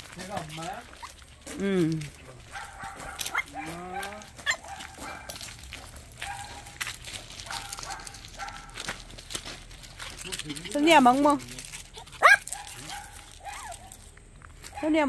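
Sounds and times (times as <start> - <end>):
footsteps on gravel: 0.0 - 15.0
puppy whining and yipping: 0.6 - 1.3, 11.9 - 14.0.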